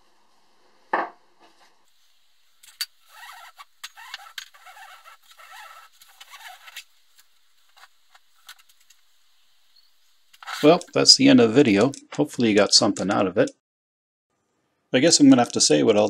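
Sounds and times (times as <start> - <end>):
strap scraping across pack: 3.0 - 6.9, 10.4 - 10.8.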